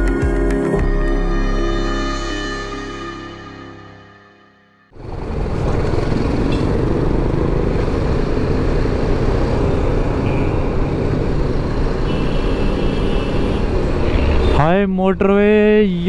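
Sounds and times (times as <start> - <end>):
motorcycle engine running: 5.0 - 11.7.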